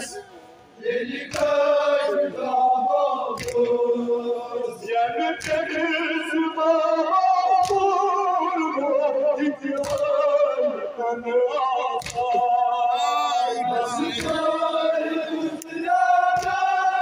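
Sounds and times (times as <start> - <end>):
man singing through a microphone: 0.0 - 17.0
group of men chanting: 0.8 - 17.0
hands slapping chests: 1.3 - 1.5, 3.3 - 3.8, 5.4 - 5.7, 7.6 - 7.9, 9.8 - 10.1, 12.0 - 12.3, 16.3 - 16.7.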